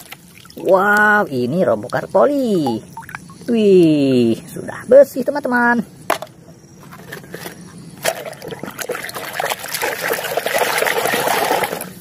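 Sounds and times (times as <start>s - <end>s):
toy truck sloshing in water: 8.0s - 12.0s.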